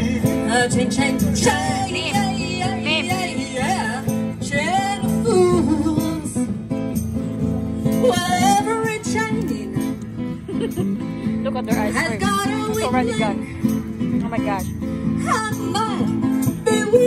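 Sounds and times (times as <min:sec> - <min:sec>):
woman singing: 0:00.0 - 0:06.5, 0:08.0 - 0:10.0, 0:11.6 - 0:13.6, 0:14.6 - 0:17.0
acoustic guitar: 0:00.0 - 0:17.0.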